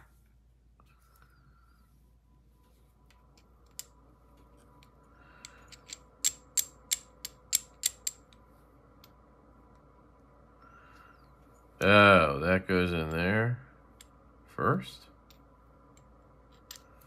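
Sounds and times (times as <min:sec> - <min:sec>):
magnetic toy parts clicking: 0:05.7 - 0:08.3.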